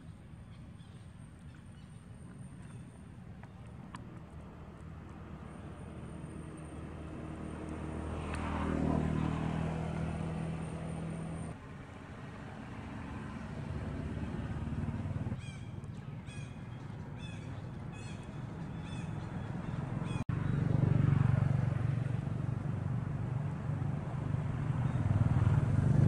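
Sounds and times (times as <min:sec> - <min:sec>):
vehicle engine passing by: 0:03.9 - 0:26.0.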